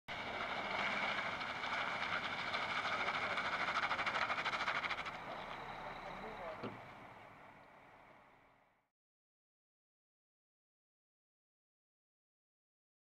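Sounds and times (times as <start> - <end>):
vehicles straining with high whine: 0.1 - 8.8.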